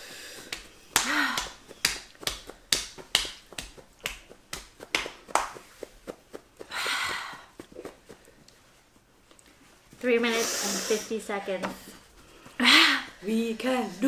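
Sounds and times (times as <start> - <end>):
breathy hiss of inhaled air: 0.0 - 0.6, 10.3 - 11.2.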